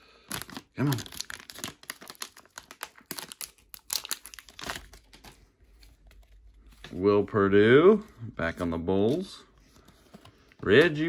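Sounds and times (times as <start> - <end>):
wrapper crinkling and tearing: 0.2 - 6.3.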